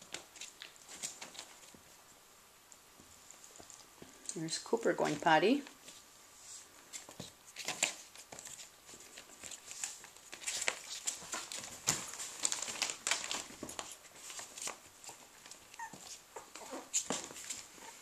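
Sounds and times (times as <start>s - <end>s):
newspaper rustling and crinkling: 5.8s - 18.0s
puppy squeaks: 15.8s - 16.8s.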